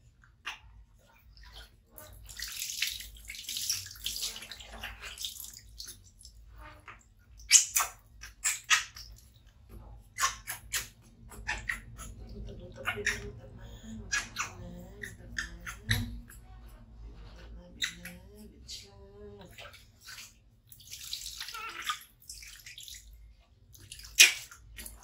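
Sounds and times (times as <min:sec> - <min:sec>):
short sharp splashes and drips: 0:00.0 - 0:13.4, 0:19.4 - 0:25.0
water pouring and splashing: 0:00.5 - 0:10.9, 0:19.4 - 0:25.0.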